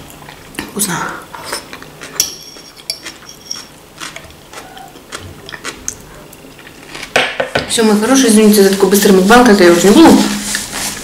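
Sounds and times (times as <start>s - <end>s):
chewing: 1.3s - 7.1s.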